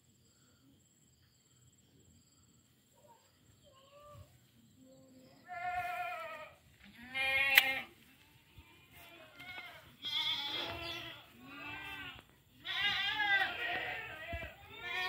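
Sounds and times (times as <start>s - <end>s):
farm animals bleating: 5.4s - 15.0s.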